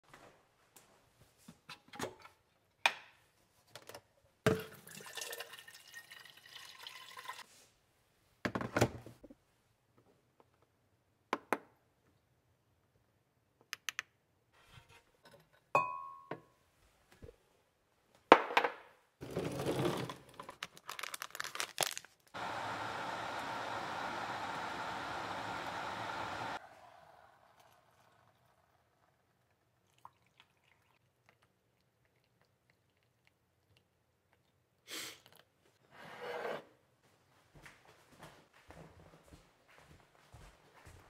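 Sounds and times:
water running: 4.5 - 7.4, 22.4 - 31.0
rummaging through a drawer: 19.2 - 20.6.

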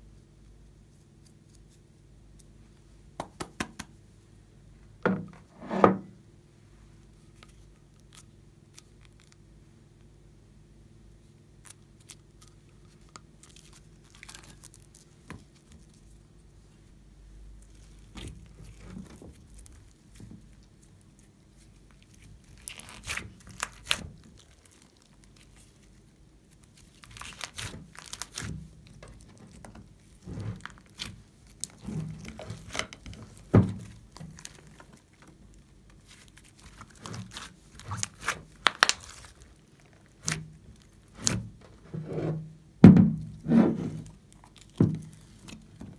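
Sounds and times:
slime sticky clicks and crackles: 36.0 - 40.9.

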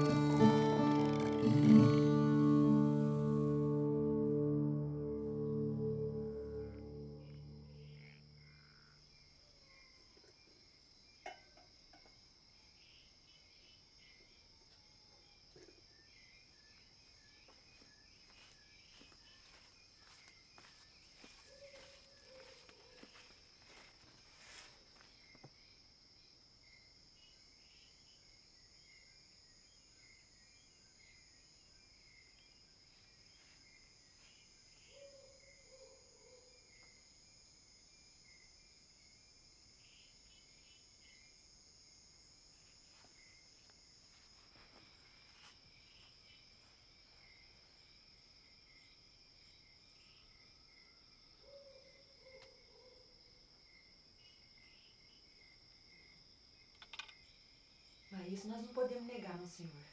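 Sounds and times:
pulsing insect chirp: 0.0 - 2.8, 3.4 - 11.2, 15.2 - 59.9
insect high trill: 0.0 - 4.3.

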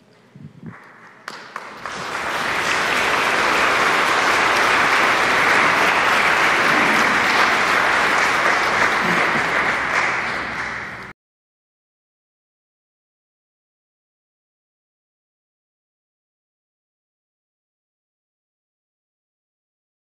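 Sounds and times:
congregation applauding: 0.7 - 11.1.

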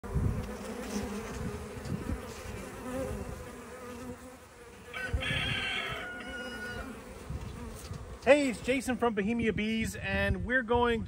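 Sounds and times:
bees buzzing: 0.0 - 9.1.

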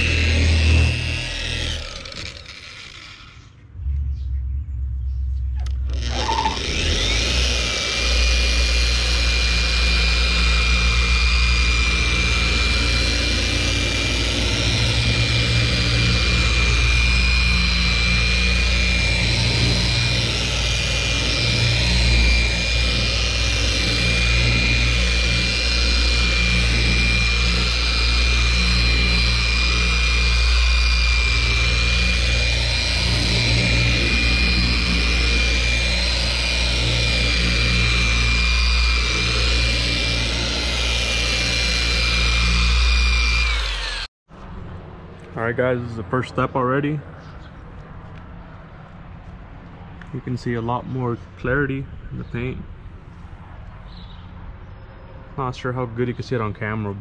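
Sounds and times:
electric car polisher whining: 0.0 - 3.6, 5.6 - 44.1.

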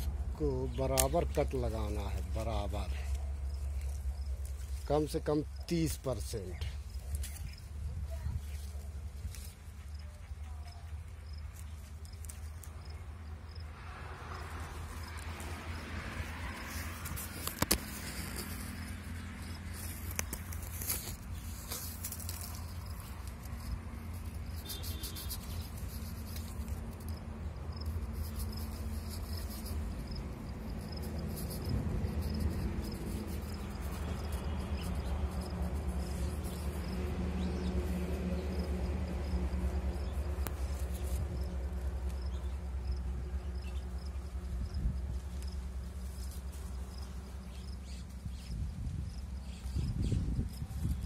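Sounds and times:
leaf rustles: 0.0 - 49.8
knife clicks on twig: 0.9 - 1.4.

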